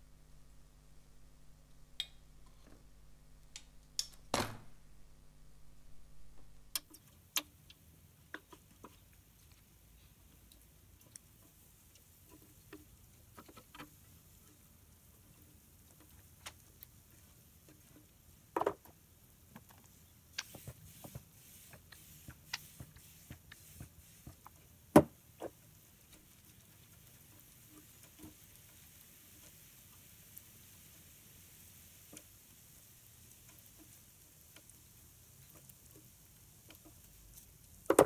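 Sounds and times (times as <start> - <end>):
loud knocks: 4.3 - 4.8.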